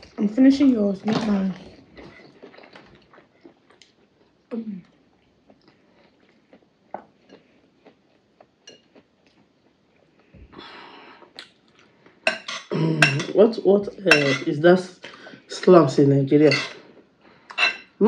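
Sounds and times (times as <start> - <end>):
people chewing and smacking: 0.0 - 15.4
metal spoons clicking on plates: 12.3 - 13.4, 14.1 - 14.5, 16.5 - 16.8, 17.5 - 17.9.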